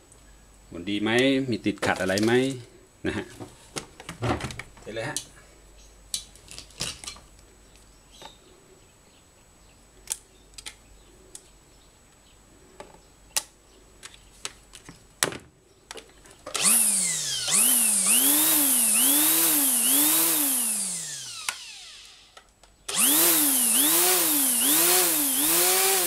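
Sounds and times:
electric string trimmer motor whining: 16.5s - 26.0s.

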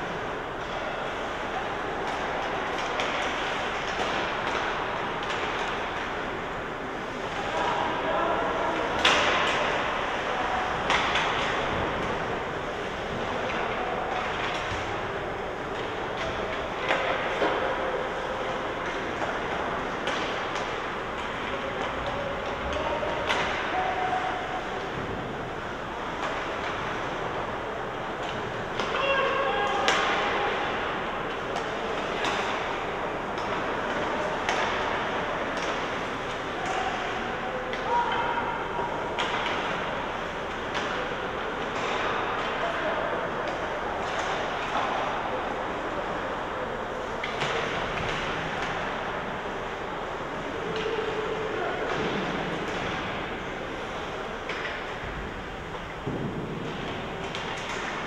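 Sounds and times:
skating hiss and arena hubbub: 0.0s - 58.0s
hockey stick clacking puck: 1.7s - 6.2s, 8.8s - 15.0s, 18.4s - 25.1s, 26.0s - 27.5s, 28.1s - 38.3s, 39.0s - 42.7s, 43.4s - 46.2s, 50.4s - 55.2s, 55.8s - 58.0s
stick hitting puck: 8.8s - 9.8s.

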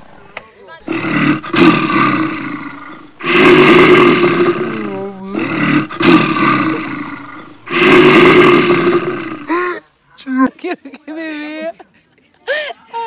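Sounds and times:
big cat roaring: 0.9s - 9.6s.

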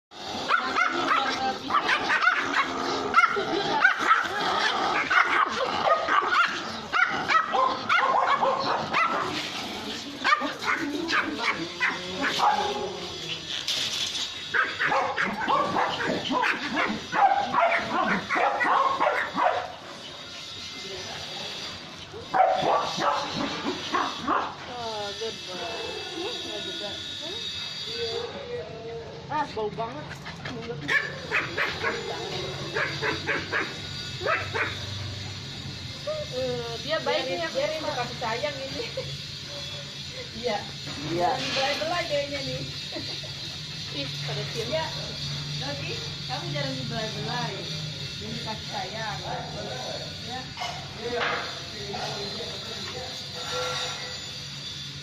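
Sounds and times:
puppies yapping and barking: 0.4s - 20.8s, 21.5s - 25.0s, 25.7s - 35.4s.

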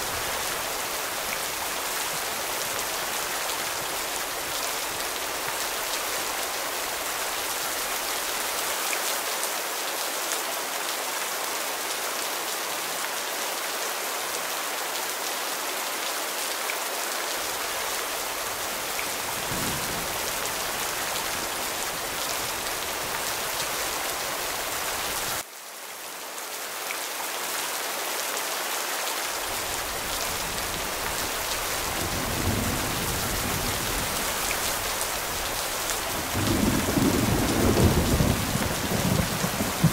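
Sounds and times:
heavy rain falling: 0.0s - 25.5s, 26.2s - 39.9s
low thunder rumbling: 19.1s - 22.6s, 36.2s - 39.9s.

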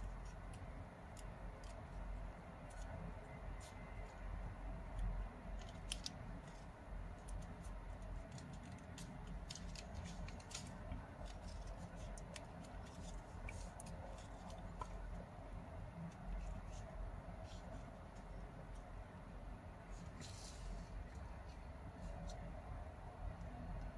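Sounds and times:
paper crinkling and crackling: 0.0s - 4.2s, 4.9s - 15.2s
low steady hum: 0.0s - 23.9s.

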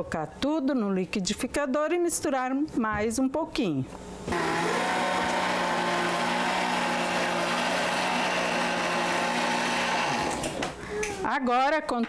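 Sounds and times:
blender motor humming: 4.3s - 10.8s.

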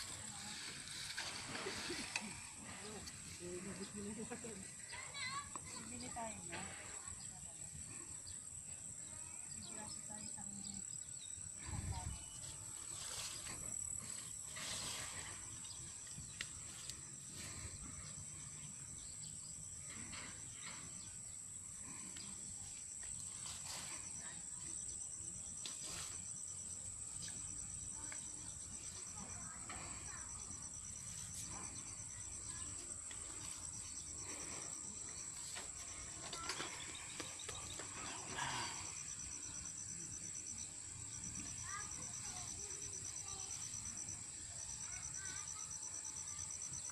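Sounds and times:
rustling: 0.0s - 5.9s, 11.6s - 18.0s
insects buzzing: 0.0s - 46.9s
pulsing insect chirp: 0.0s - 46.9s
high-pitched insect drone: 23.5s - 46.9s.

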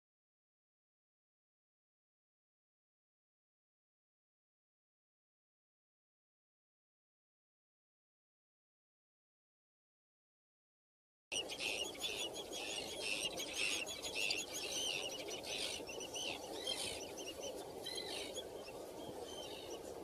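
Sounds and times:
birds chirping: 11.3s - 20.0s.

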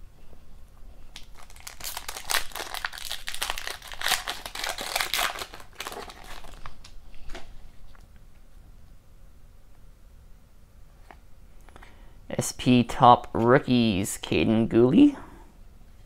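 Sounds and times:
foil wrapper crinkling: 1.1s - 7.0s.

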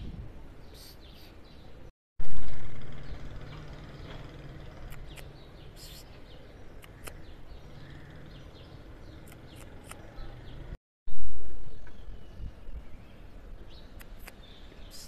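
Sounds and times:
small birds chirping: 0.5s - 1.9s, 2.5s - 15.0s
sharp clicks: 4.8s - 5.4s, 6.8s - 7.2s, 9.2s - 10.1s, 14.0s - 14.4s.

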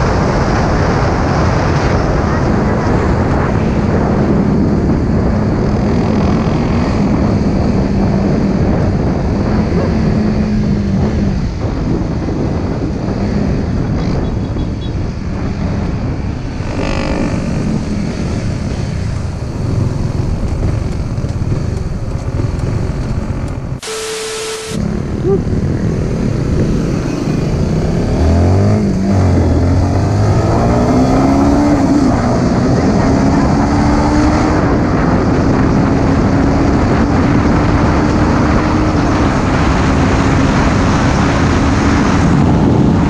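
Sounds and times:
wind rush on microphone: 0.0s - 23.8s, 24.5s - 43.0s
motorcycle engine: 4.2s - 12.2s, 13.1s - 43.0s
brief pitched sound: 23.8s - 25.6s.

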